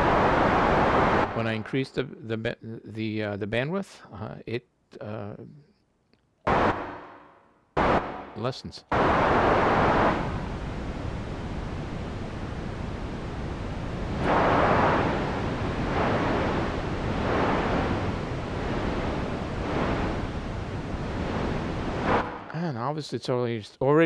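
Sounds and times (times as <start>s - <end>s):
filtered synthesised white noise: 0.0s - 2.1s, 6.5s - 22.7s.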